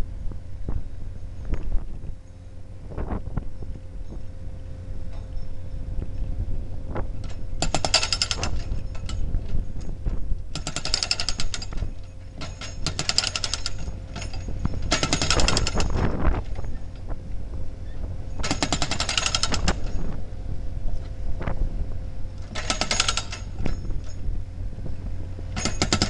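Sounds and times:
diesel engine running: 0.0s - 26.0s
hydraulic breaker hammering concrete: 7.6s - 8.6s, 10.6s - 11.8s, 12.4s - 16.0s, 18.4s - 19.8s, 22.5s - 23.8s, 25.6s - 26.0s.

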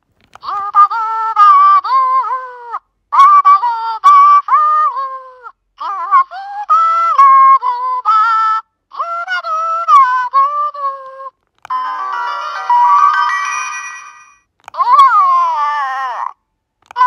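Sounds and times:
toy singing in electronic voice: 0.4s - 13.8s, 14.7s - 17.0s
chiming jingle: 11.8s - 14.4s.

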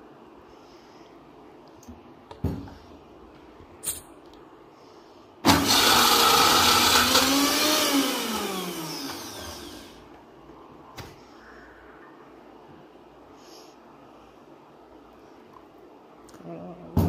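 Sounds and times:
mixer grinder motor running: 5.5s - 10.0s.

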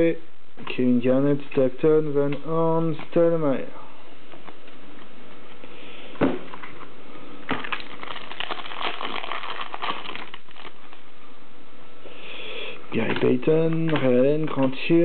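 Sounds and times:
cards crackling as they slide: 7.6s - 11.0s.

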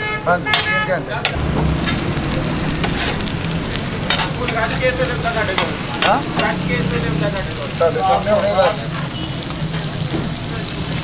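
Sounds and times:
bread sizzling on a griddle: 1.6s - 11.0s.

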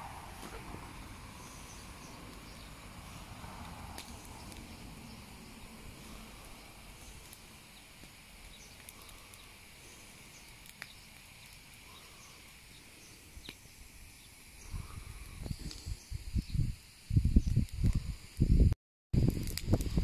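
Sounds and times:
bonfire burning with faint crackle: 0.0s - 20.0s
faint birdsong: 0.4s - 16.7s
low rumbling microphone bumps: 14.6s - 20.0s.

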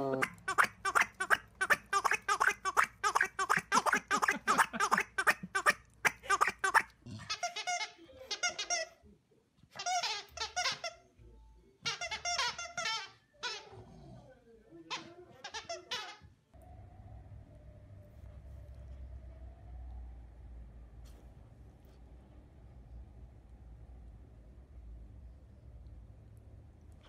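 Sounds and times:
squeaky dog toy squeaking: 0.2s - 9.0s, 9.7s - 11.1s, 11.8s - 13.8s, 14.9s - 16.4s.

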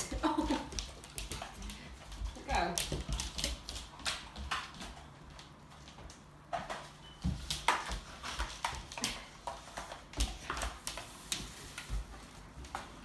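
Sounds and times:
broom scraping tiled floor: 7.6s - 13.0s.

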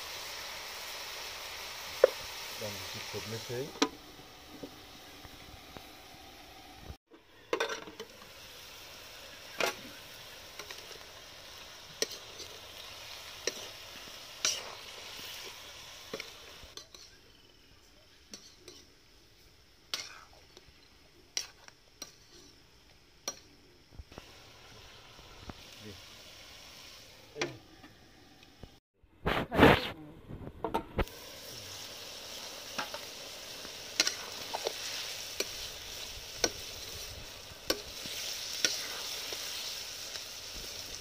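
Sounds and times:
meat sizzling in a wok: 0.0s - 28.8s, 31.0s - 41.0s
metal spoon scraping a wok: 14.4s - 14.8s, 16.1s - 17.2s, 21.4s - 22.6s, 34.0s - 36.8s, 37.7s - 39.6s.

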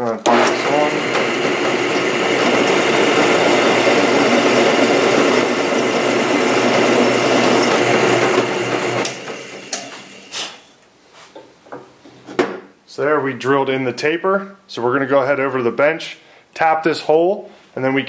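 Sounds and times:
drill press running: 0.2s - 10.4s
knocks of drill stopping: 0.3s - 10.2s.

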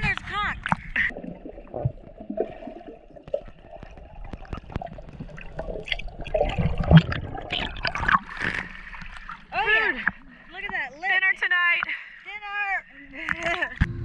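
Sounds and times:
underwater bubbling and gurgling: 0.6s - 10.5s
underwater clicks and knocks: 3.2s - 9.4s, 13.2s - 14.0s.

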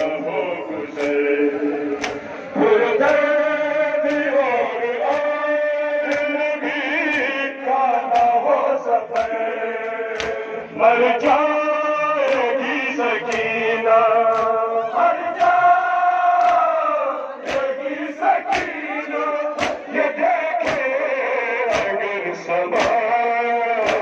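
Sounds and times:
men chanting a lament: 0.0s - 24.0s
hands slapping chests: 1.0s - 1.3s, 1.9s - 2.3s, 3.0s - 3.3s, 4.0s - 4.3s, 5.1s - 5.4s, 6.0s - 6.4s, 7.0s - 10.5s, 12.2s - 12.6s, 13.2s - 13.6s, 14.2s - 14.6s, 15.3s - 15.7s, 16.3s - 16.7s, 17.4s - 19.9s, 20.6s - 21.0s, 21.6s - 22.0s, 22.7s - 23.0s, 23.8s - 24.0s.

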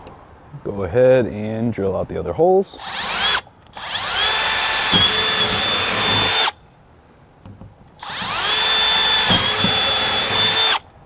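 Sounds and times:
cordless drill whining: 2.8s - 6.6s, 8.0s - 10.9s.

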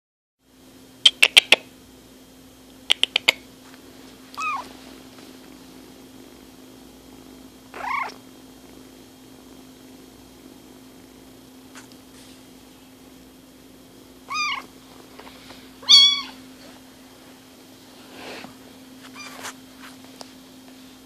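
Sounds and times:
steady low hum: 0.4s - 21.0s
kitten mewing: 4.4s - 4.7s, 7.7s - 8.2s, 14.3s - 14.7s, 15.8s - 16.4s, 19.1s - 19.6s.

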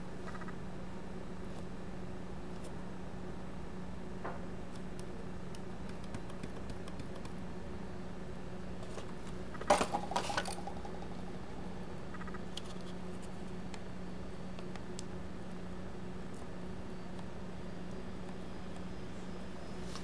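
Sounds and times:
steady low hum: 0.0s - 20.0s
loud plastic clacks: 9.5s - 11.3s.

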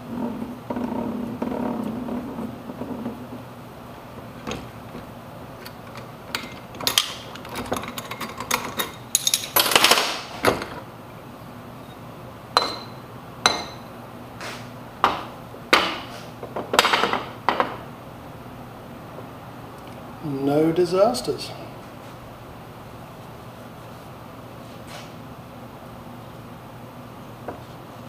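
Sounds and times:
metal engine parts clinking: 4.5s - 10.8s.

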